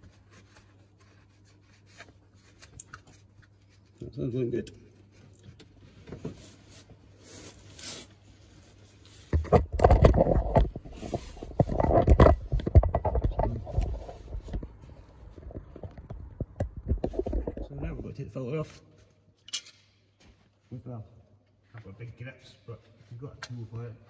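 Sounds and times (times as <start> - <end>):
cloth rag wiping: 0.0 - 4.0
phone handling rubbing and knocking: 9.2 - 17.6.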